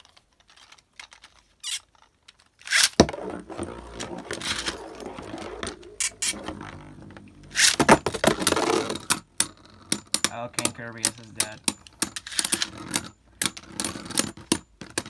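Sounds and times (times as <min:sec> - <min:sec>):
spinning top scraping plastic floor: 0:00.0 - 0:15.0
spinning top ripcord launch: 0:02.6 - 0:06.9, 0:07.5 - 0:09.0.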